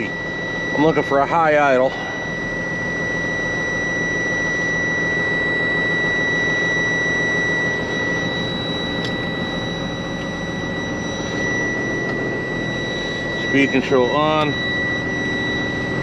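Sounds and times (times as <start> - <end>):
high-pitched tone: 0.0 - 16.0.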